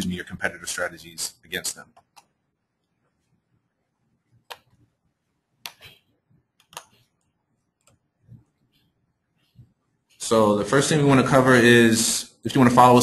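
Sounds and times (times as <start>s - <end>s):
computer clicks: 6.6s - 7.1s.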